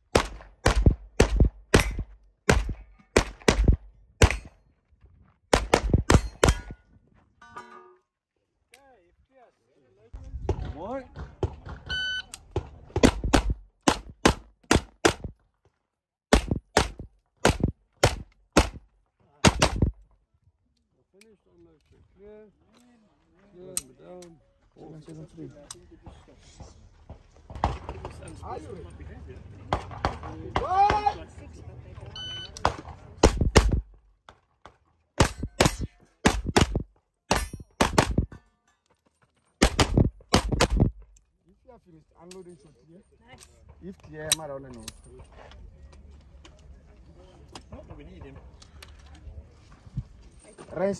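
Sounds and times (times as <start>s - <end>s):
gunshots in quick pairs: 0.1s - 4.5s, 5.5s - 6.7s, 13.0s - 15.3s, 16.3s - 18.8s, 19.4s - 19.9s, 32.6s - 33.9s, 35.2s - 38.3s, 39.6s - 41.0s
sharp metallic clang: 6.1s - 8.0s, 37.3s - 38.7s
rapid gunshots: 33.2s - 33.8s, 35.2s - 36.8s, 37.8s - 38.3s, 39.6s - 40.9s.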